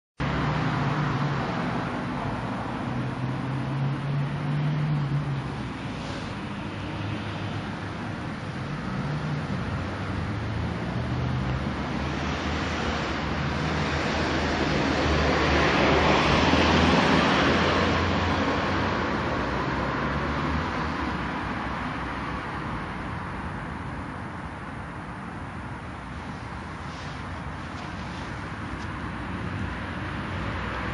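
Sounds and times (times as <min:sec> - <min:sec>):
vehicle passing: 0:00.2 - 0:23.2, 0:26.0 - 0:30.9
road traffic hum: 0:00.2 - 0:30.9.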